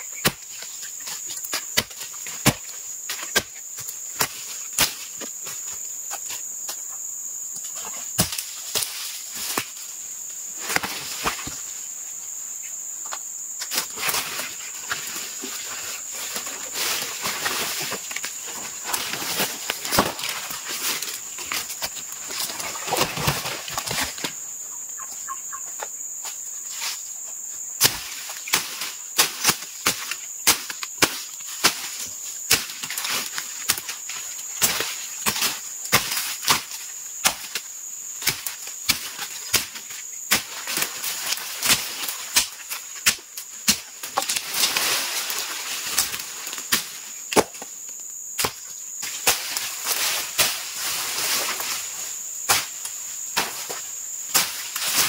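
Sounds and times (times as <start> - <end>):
insect drone: 0.0 - 55.0
blade chopping roots: 46.0 - 47.7.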